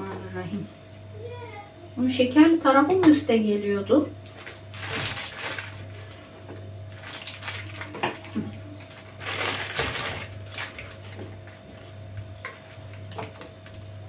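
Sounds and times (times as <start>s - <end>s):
crunchy rustle: 4.3s - 6.3s, 6.9s - 11.6s.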